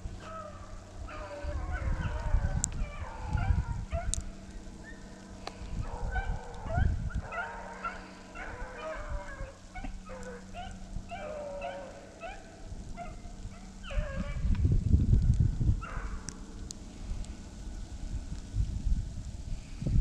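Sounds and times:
low rumble: 0.0 - 20.0
hounds baying: 0.2 - 14.5, 15.8 - 16.3.

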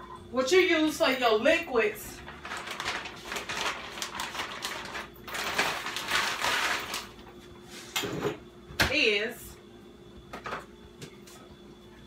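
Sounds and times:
plastic bag crinkling: 2.2 - 7.3.

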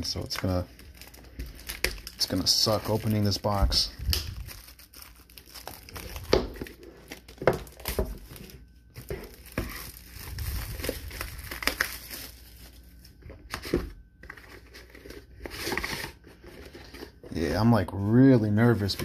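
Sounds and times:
shrink-wrap crinkling and tearing: 0.0 - 13.1.

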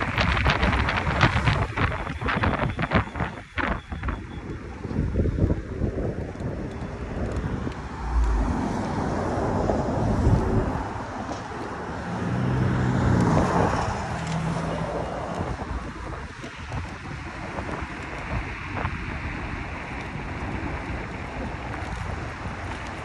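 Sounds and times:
vehicle engine hum passing: 0.0 - 23.0
passing cars rushing: 4.6 - 23.0.

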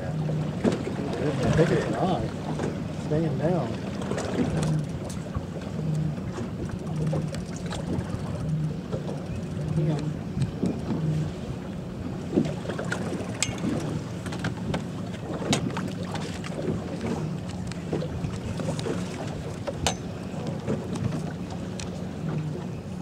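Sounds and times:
boat motor humming: 0.0 - 23.0
wind on microphone: 4.3 - 21.6.

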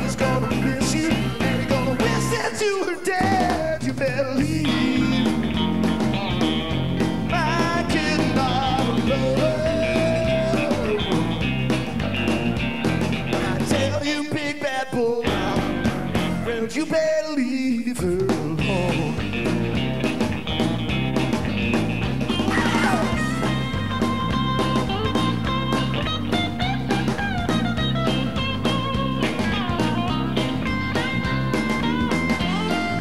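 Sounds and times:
man singing: 0.0 - 5.5, 7.3 - 11.5, 13.4 - 19.3, 22.5 - 23.6
electric guitar: 0.0 - 16.8, 18.2 - 33.0
bass guitar: 0.0 - 17.3, 17.9 - 33.0
drums: 0.0 - 33.0.

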